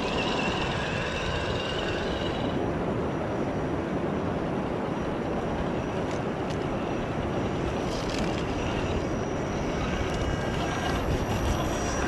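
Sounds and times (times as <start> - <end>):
toy crawler motor whir: 0.0 - 2.6, 6.0 - 12.0.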